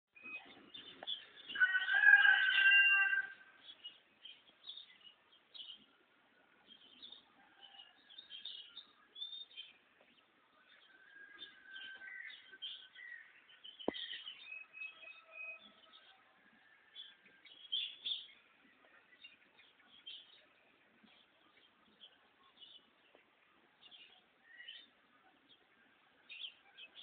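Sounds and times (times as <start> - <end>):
small birds chirping: 0.1 - 27.0
loud drawn-out bird call: 1.6 - 3.4.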